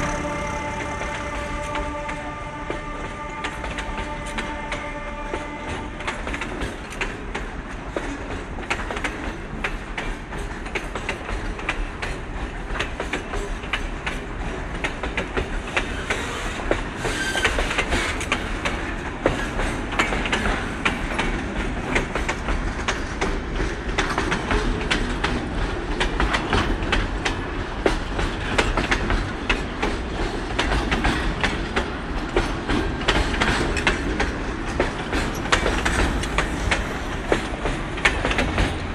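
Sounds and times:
high wheel squeal: 0.0 - 2.2
train wheels clattering over rail joints: 0.0 - 38.9.

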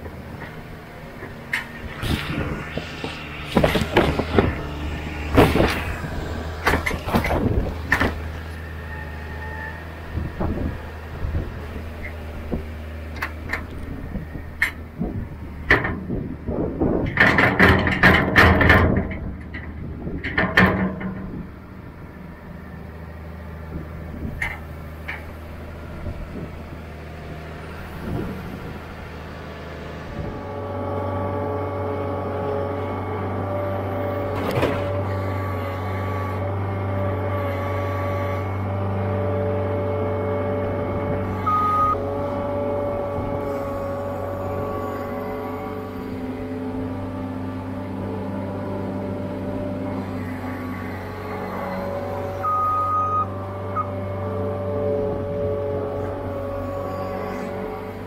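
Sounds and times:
loader engine running: 0.0 - 58.0
loader bucket clanking: 34.2 - 35.6.

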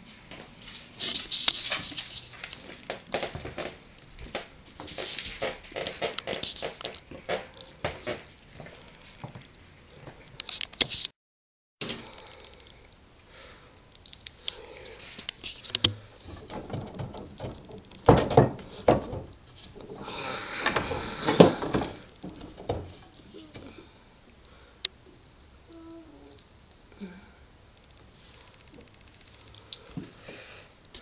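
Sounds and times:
wooden spindle knocking and rattling: 15.6 - 20.0, 20.6 - 23.7.

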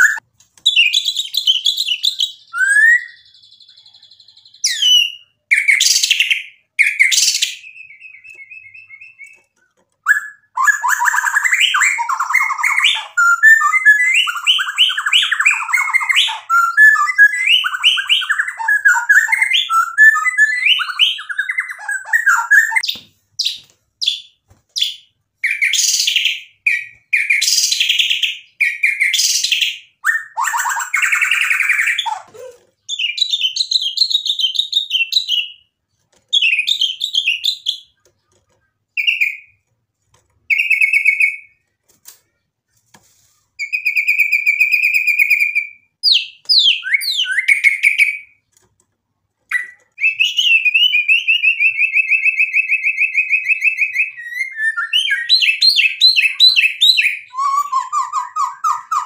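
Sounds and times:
bird singing: 0.0 - 35.7, 43.6 - 48.4.

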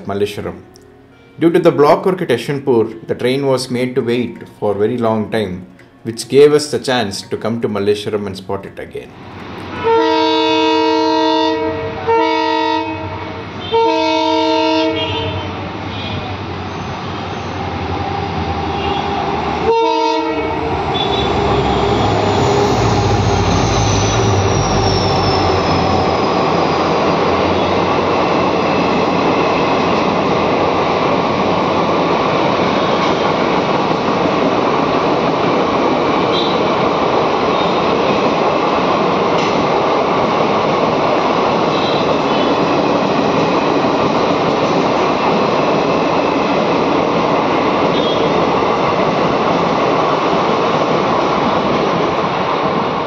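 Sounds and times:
locomotive horn blasts: 9.7 - 16.3, 17.3 - 26.1, 36.3 - 36.7, 41.7 - 42.6, 47.9 - 48.3
train wheels rattling on rail joints: 14.9 - 53.0
diesel engine passing: 15.3 - 35.7.

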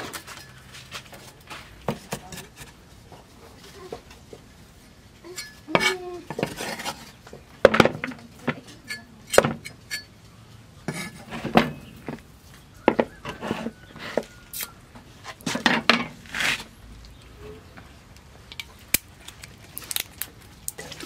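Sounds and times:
plates and utensils clinking: 5.3 - 7.0
short scrapes: 16.2 - 16.7.

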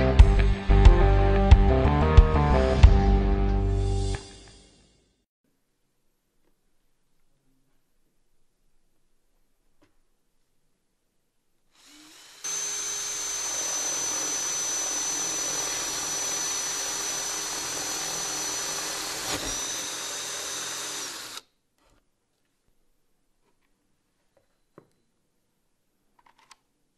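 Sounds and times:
cordless drill boring into wood: 11.8 - 21.5.

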